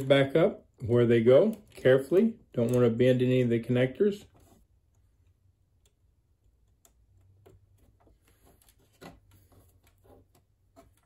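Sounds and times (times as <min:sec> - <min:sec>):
wire connectors clicking: 0:00.0 - 0:03.4, 0:04.8 - 0:11.0.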